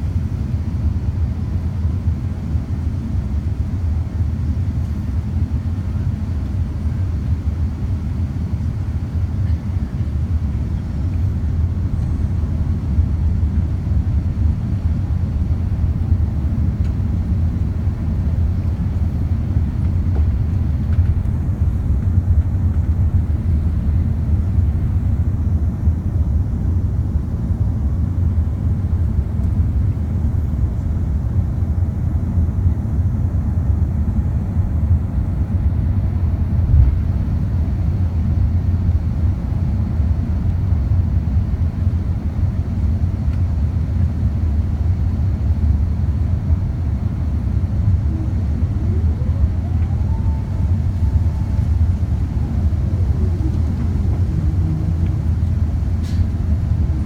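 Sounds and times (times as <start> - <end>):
aircraft cabin engine rumble: 0.0 - 57.0
whine rising in pitch: 47.5 - 57.0.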